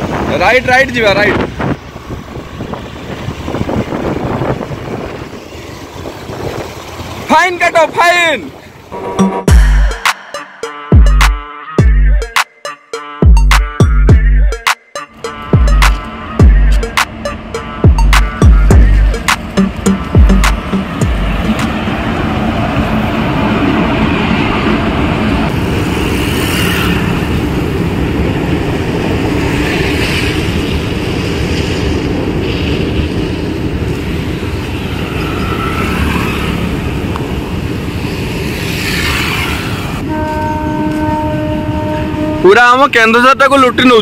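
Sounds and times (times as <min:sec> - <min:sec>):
vehicle engine and road noise: 0:00.0 - 0:12.2, 0:13.4 - 0:44.0
car horn: 0:08.9 - 0:09.7, 0:40.0 - 0:42.8.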